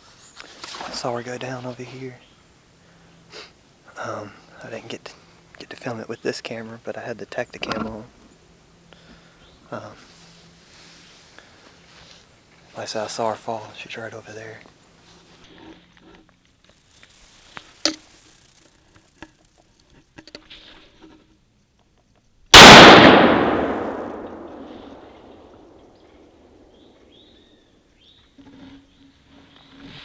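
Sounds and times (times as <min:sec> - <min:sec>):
gunshot echoing: 0:22.5 - 0:25.9.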